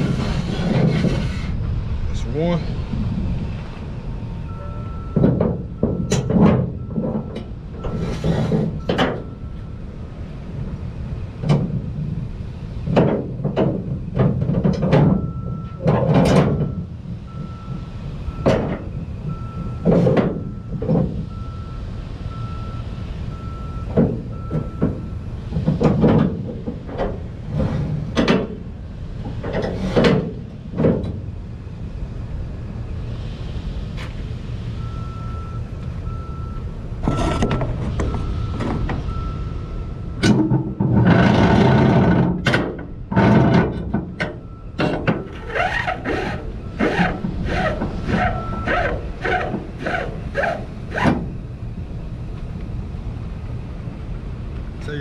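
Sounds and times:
scraping rustling noise: 0:00.0 - 0:01.6
low engine rumble: 0:00.0 - 0:55.0
reversing alarm beeping: 0:04.2 - 0:09.9, 0:15.1 - 0:15.9, 0:16.5 - 0:25.3, 0:34.8 - 0:40.8, 0:44.1 - 0:49.2
straps and hooks clanking: 0:40.2 - 0:51.3.

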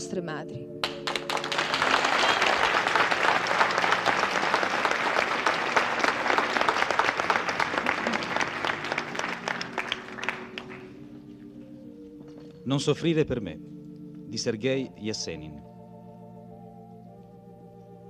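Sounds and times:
soft background music: 0:00.0 - 0:05.2, 0:06.9 - 0:18.0
audience applauding: 0:00.8 - 0:11.1.

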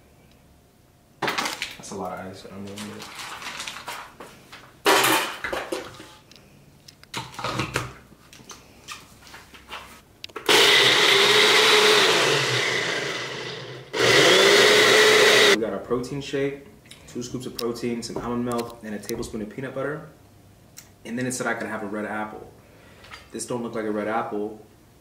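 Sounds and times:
cup blender running: 0:10.4 - 0:15.6.

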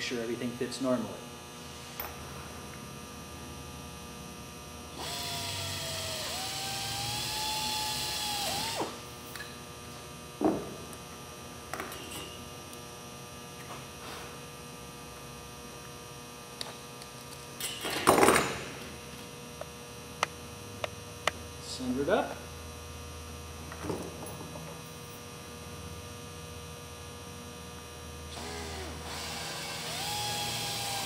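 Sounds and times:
pneumatic air drill whining: 0:05.0 - 0:09.0, 0:28.3 - 0:31.0.

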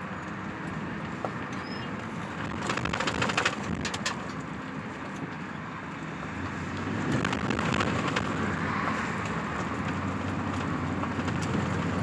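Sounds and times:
car road and tyre noise: 0:00.0 - 0:12.0
crackling: 0:07.2 - 0:08.5.

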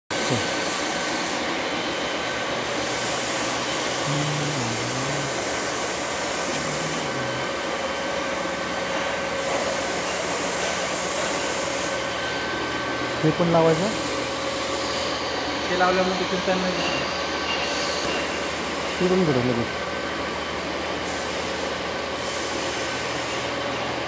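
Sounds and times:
electric motor humming: 0:02.7 - 0:08.2.

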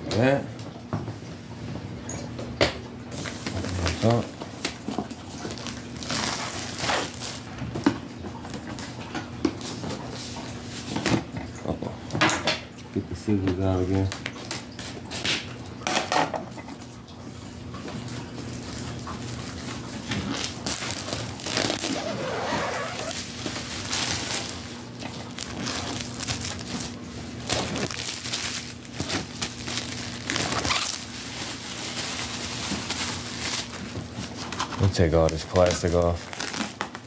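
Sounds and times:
plastic wrap crinkling: 0:03.2 - 0:07.7, 0:18.4 - 0:37.0
scissors cutting plastic: 0:25.4 - 0:31.0.

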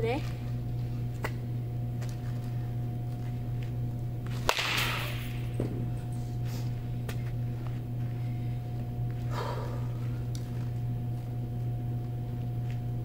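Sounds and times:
steady low hum: 0:00.0 - 0:13.0
bat cracking ball: 0:04.2 - 0:06.0.

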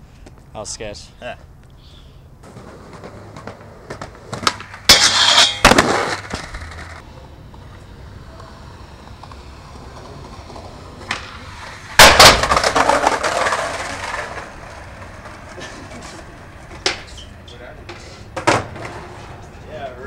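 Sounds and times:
skateboard slapping on concrete: 0:02.4 - 0:07.0, 0:09.1 - 0:16.2
skateboard wheels rolling: 0:02.4 - 0:20.0
skateboard landing slam: 0:03.4 - 0:06.9, 0:11.0 - 0:14.4.

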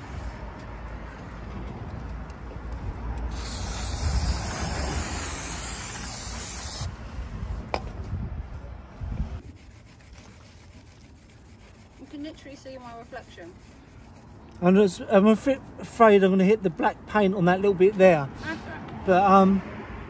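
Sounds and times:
aerosol can spraying: 0:03.3 - 0:07.0
steel wool rubbing metal: 0:09.4 - 0:14.5.

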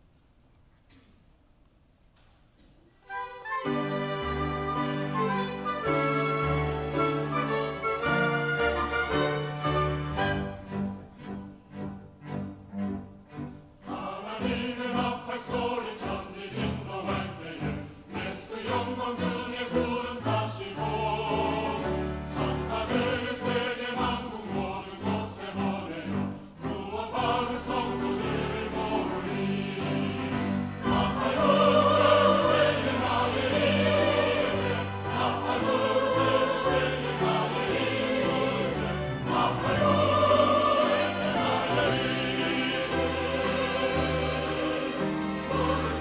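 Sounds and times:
string ensemble: 0:03.0 - 0:46.0
choir singing a hymn: 0:03.4 - 0:12.0, 0:13.4 - 0:46.0.

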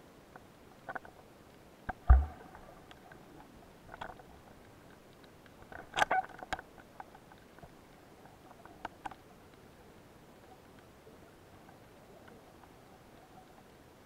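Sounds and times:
underwater sharp clicks: 0:01.9 - 0:03.2
underwater heavy knock: 0:02.1 - 0:02.5.

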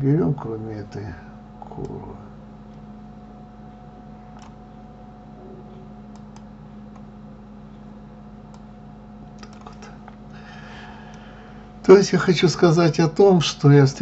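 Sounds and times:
steady low hum: 0:00.0 - 0:14.0
keyboard and mouse clicks: 0:04.4 - 0:04.6, 0:09.4 - 0:10.2.

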